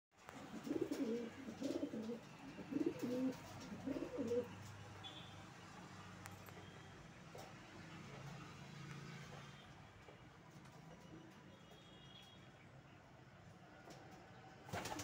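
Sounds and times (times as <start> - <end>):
pigeons cooing: 0.4 - 4.6.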